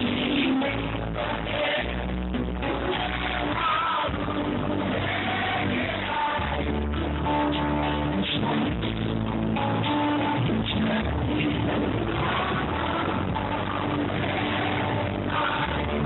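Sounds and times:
person singing into a microphone: 0:00.0 - 0:09.2, 0:09.8 - 0:16.0
live band with guitar: 0:00.0 - 0:16.0.

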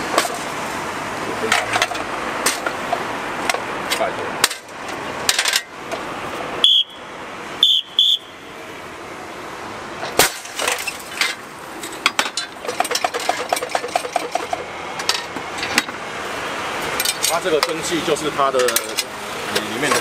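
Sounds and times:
clicks and rattles: 0:10.2 - 0:15.9.

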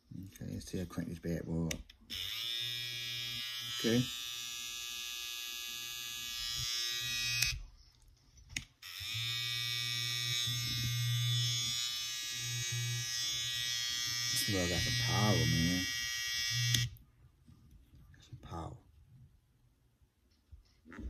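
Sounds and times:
hair trimmer buzzing: 0:02.1 - 0:07.6, 0:08.8 - 0:17.0.

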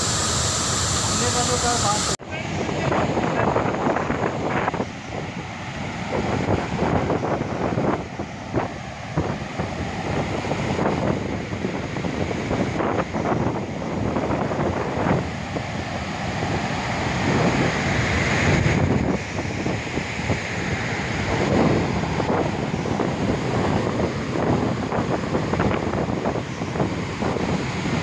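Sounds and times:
water rushing from dam: 0:00.0 - 0:28.0
wind buffeting microphone: 0:02.2 - 0:28.0.

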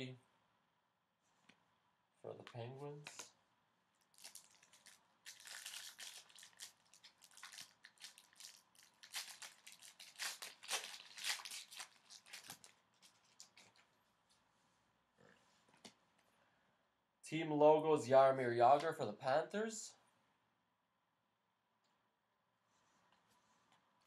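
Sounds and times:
foil wrapper tearing and crinkling: 0:04.1 - 0:13.8.

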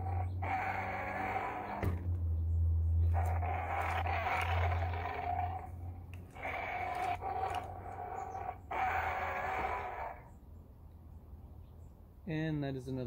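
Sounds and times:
tinny toy roars: 0:00.0 - 0:02.1, 0:03.0 - 0:10.3.

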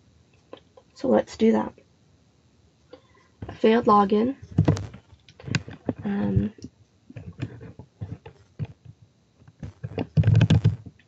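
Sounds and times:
computer keyboard typing: 0:09.6 - 0:10.9.

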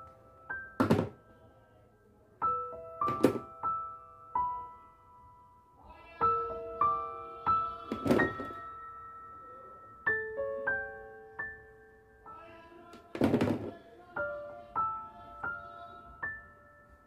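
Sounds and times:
piano melody: 0:00.0 - 0:17.0
plastic toys knocking on a box: 0:00.8 - 0:01.2, 0:03.1 - 0:03.5, 0:07.9 - 0:08.6, 0:13.2 - 0:13.8.

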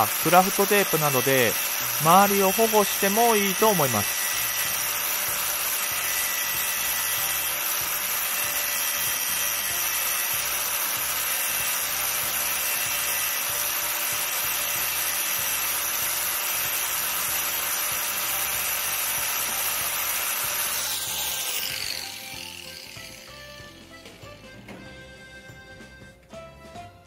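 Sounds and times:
angle grinder grinding steel: 0:00.0 - 0:24.2.

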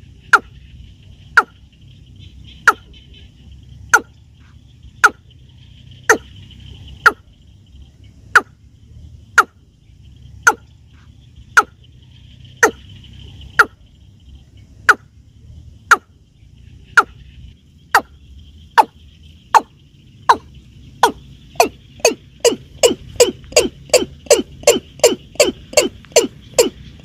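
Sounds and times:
watercock calling: 0:02.2 - 0:04.2, 0:05.0 - 0:05.3, 0:08.2 - 0:08.6, 0:09.3 - 0:09.6, 0:10.4 - 0:10.7, 0:11.5 - 0:11.9, 0:12.5 - 0:13.8, 0:16.8 - 0:27.0.

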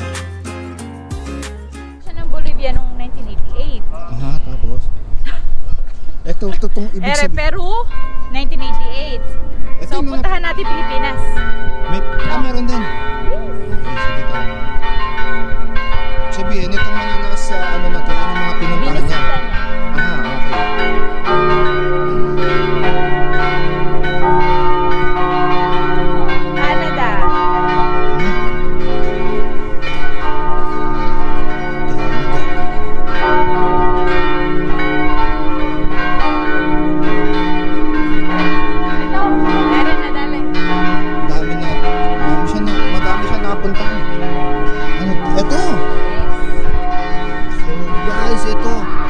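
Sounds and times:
church bells ringing: 0:06.2 - 0:49.0.

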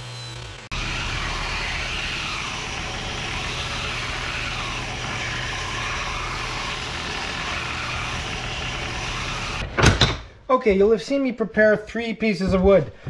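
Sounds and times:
belt sander motor hum: 0:00.0 - 0:09.6
wood sanding hiss: 0:00.7 - 0:09.6.

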